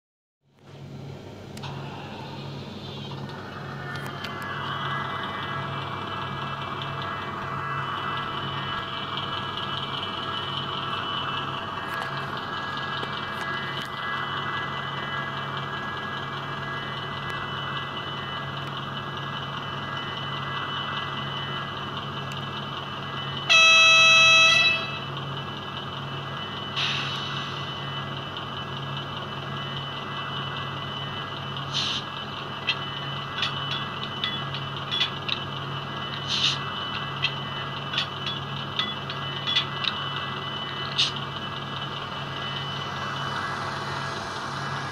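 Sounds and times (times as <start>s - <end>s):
model diesel engine idling hum: 0.6s - 44.9s
locomotive horn: 23.5s - 25.1s
short hiss: 31.7s - 32.0s.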